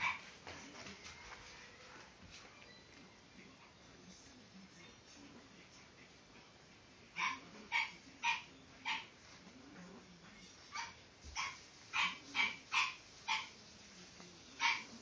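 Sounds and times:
puppy play barks: 7.2 - 9.2, 10.7 - 13.6, 14.6 - 15.0.

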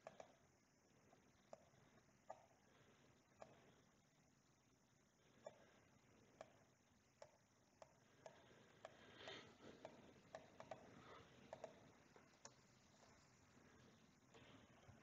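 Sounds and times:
faint computer mouse clicks: 0.0 - 0.4, 6.4 - 9.0, 9.8 - 13.3.

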